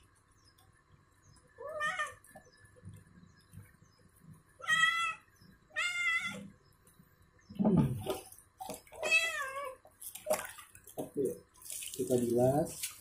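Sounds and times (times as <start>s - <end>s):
wet cat meowing: 9.0s - 9.8s.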